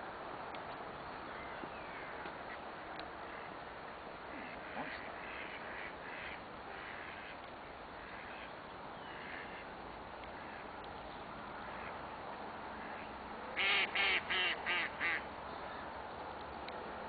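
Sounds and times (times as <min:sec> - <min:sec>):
background hiss: 0:00.0 - 0:17.0
birds calling: 0:00.7 - 0:12.0.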